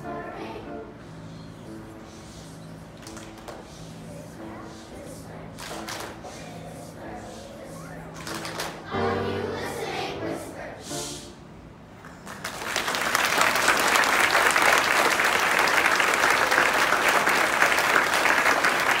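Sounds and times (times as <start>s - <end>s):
audience applause: 12.2s - 19.0s.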